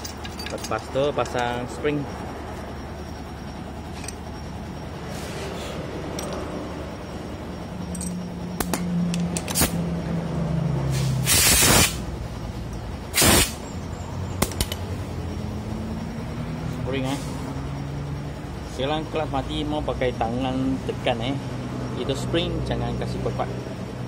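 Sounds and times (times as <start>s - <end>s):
low engine hum: 0.0s - 11.3s, 12.0s - 24.0s
steady background hum: 0.0s - 24.0s
loud bursts of hissing air: 10.9s - 12.1s, 13.1s - 13.6s.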